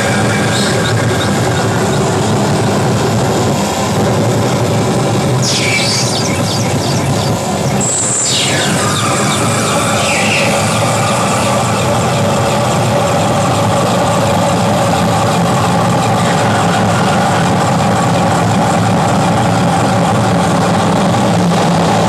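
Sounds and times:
electronic noise drone: 0:00.0 - 0:22.0.

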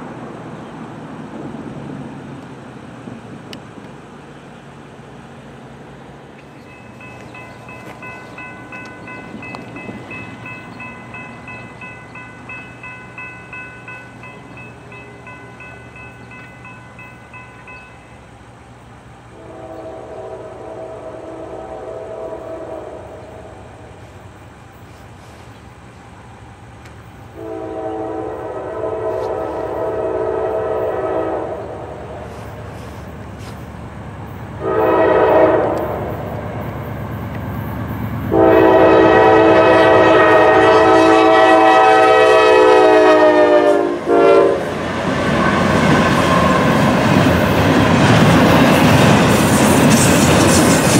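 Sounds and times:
locomotive rumble: 0:00.0 - 0:50.9
locomotive air horn blasts: 0:19.3 - 0:24.0, 0:27.3 - 0:33.1, 0:34.6 - 0:36.2, 0:38.3 - 0:44.8.

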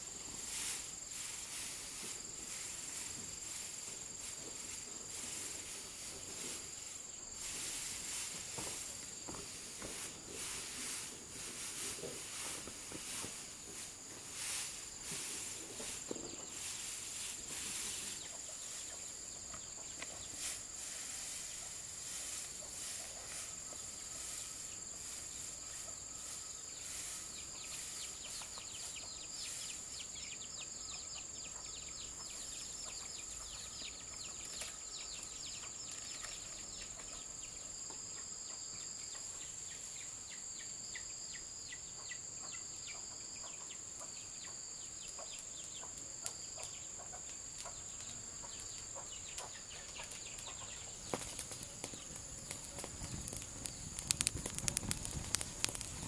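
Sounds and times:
birds chirping: 0:46.7 - 0:56.0.

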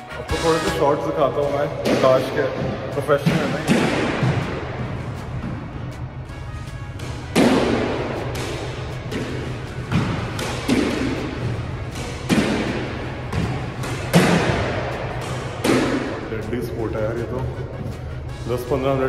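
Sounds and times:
squash ball smacks echoing: 0:01.4 - 0:05.7, 0:07.0 - 0:16.9.

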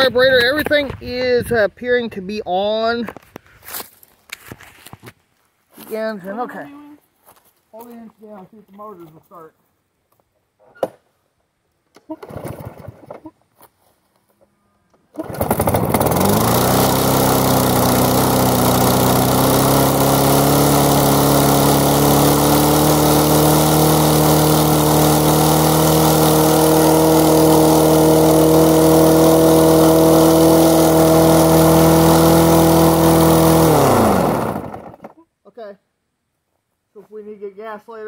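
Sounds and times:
lawn mower pull-start: 0:12.0 - 0:13.4, 0:15.0 - 0:35.2
lawn mower engine running: 0:12.2 - 0:13.2, 0:15.1 - 0:35.2.

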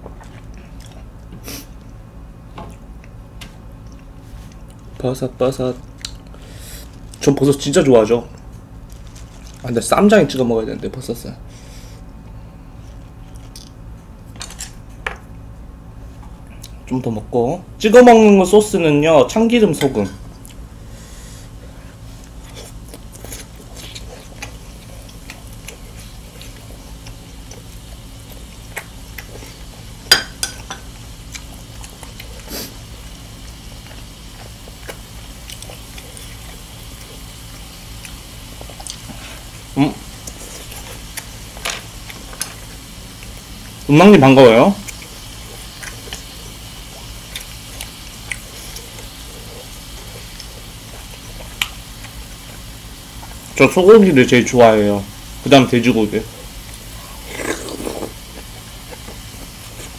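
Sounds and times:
low steady hum: 0:00.0 - 0:59.9
chewing: 0:22.2 - 0:29.9, 0:30.9 - 0:39.5, 0:40.1 - 0:43.9, 0:44.8 - 0:53.4.

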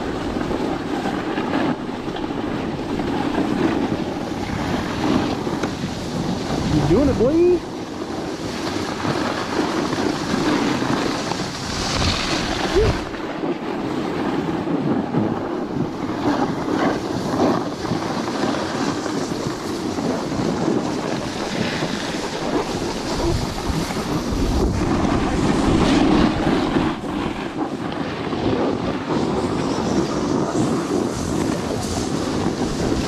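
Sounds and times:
snowboards scraping over snow: 0:00.0 - 0:33.0
wind buffeting microphone: 0:00.0 - 0:33.0.

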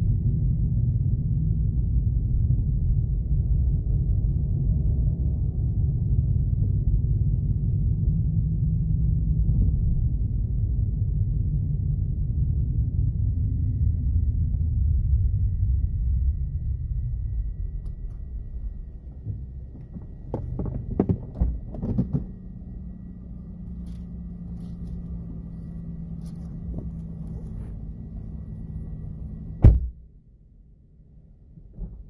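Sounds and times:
car rolling rumble: 0:00.0 - 0:30.1, 0:31.1 - 0:32.0
car engine idling hum: 0:00.0 - 0:32.0
car door shutting: 0:19.1 - 0:22.6, 0:26.2 - 0:28.4, 0:29.4 - 0:30.0
clicks and knocks: 0:19.2 - 0:22.4.

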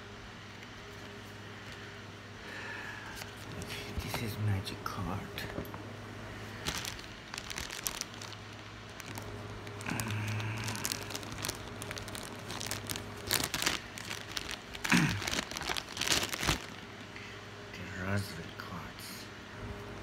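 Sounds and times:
plastic wrapper crinkling: 0:06.4 - 0:16.9.

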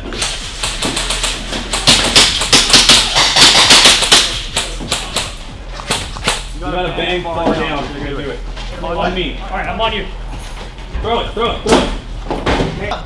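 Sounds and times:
sharp taps and knocks: 0:00.2 - 0:06.5.

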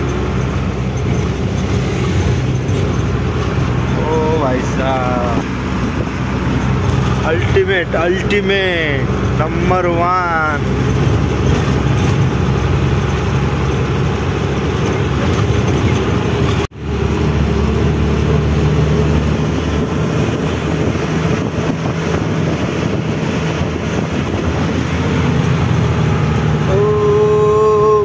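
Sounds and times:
road noise: 0:00.0 - 0:28.0
truck engine running: 0:00.0 - 0:28.0.

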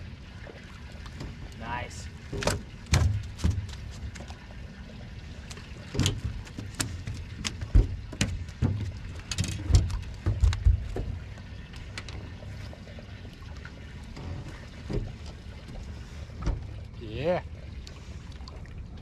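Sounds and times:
knocks and clicks on a boat: 0:02.2 - 0:04.4, 0:05.4 - 0:12.4, 0:14.0 - 0:16.9.

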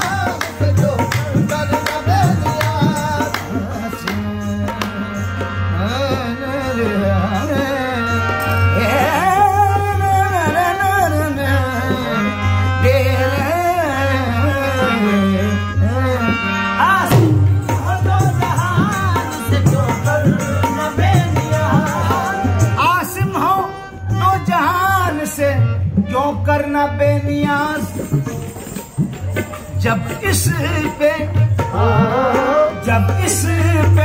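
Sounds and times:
harmonium: 0:00.0 - 0:34.0
man singing melodic lines: 0:00.0 - 0:34.0
hand drum playing: 0:17.1 - 0:22.9.

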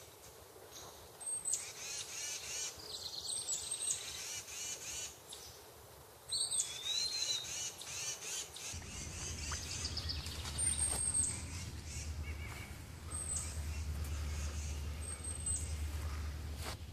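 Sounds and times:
songbirds chirping and trilling: 0:00.0 - 0:16.9
low steady rumble: 0:08.8 - 0:16.9.

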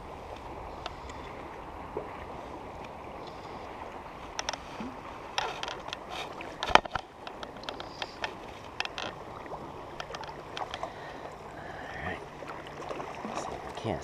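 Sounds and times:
fish splashing: 0:03.1 - 0:14.0.

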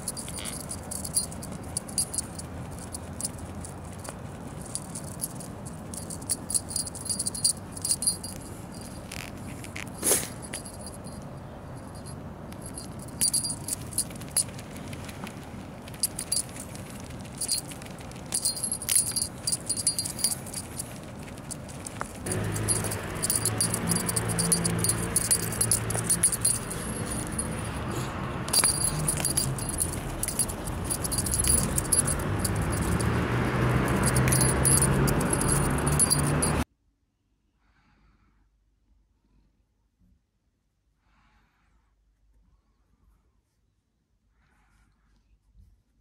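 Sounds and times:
small bell jingling: 0:00.0 - 0:14.9, 0:15.9 - 0:36.6.

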